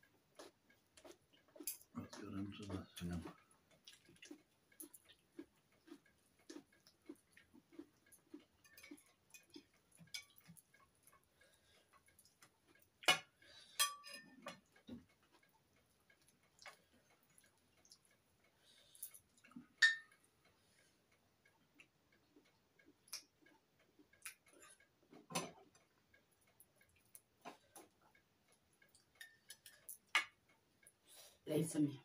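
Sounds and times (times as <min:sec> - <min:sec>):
soft regular ticks: 0:00.0 - 0:31.8
cutlery clinking on plates: 0:13.0 - 0:14.6, 0:19.8 - 0:20.2.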